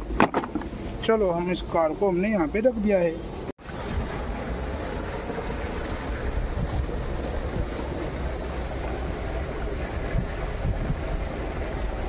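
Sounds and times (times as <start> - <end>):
water pouring from a pipe: 3.6 - 12.0
wind rumble on microphone: 3.7 - 12.0.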